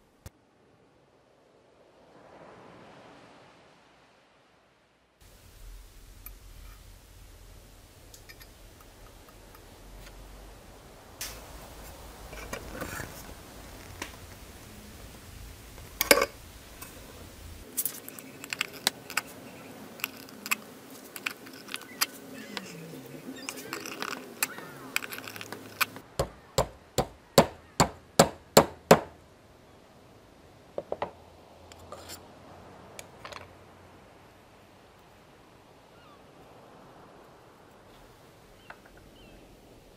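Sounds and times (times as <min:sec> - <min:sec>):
metal scraping: 0:17.7 - 0:26.0
metal tools clicking on copper: 0:23.4 - 0:26.0.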